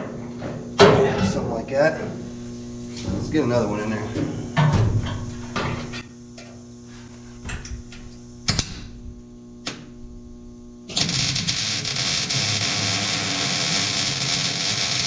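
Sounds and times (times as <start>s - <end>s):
welder arc crackling: 10.9s - 15.0s.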